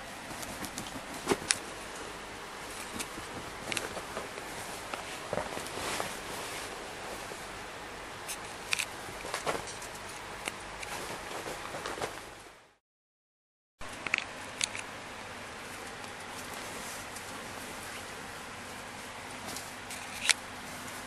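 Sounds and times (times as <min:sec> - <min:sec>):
rustling of quilt: 0:02.6 - 0:07.6, 0:09.2 - 0:09.9, 0:10.8 - 0:12.5.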